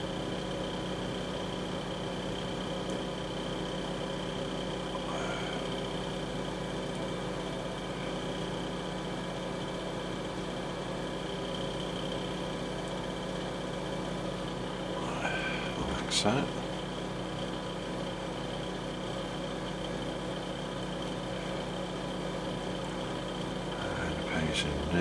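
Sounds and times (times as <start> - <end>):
small motor humming: 0.0 - 25.0.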